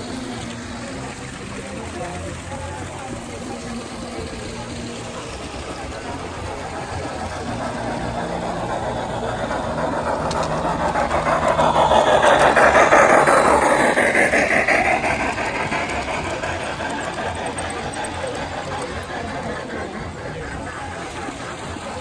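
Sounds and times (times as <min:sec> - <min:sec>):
model train wheels on rails: 0:00.0 - 0:22.0.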